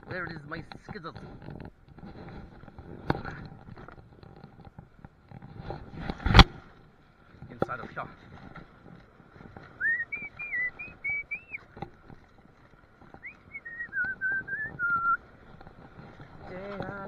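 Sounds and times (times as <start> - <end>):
person whistling a tune: 9.8 - 11.6, 13.2 - 15.2.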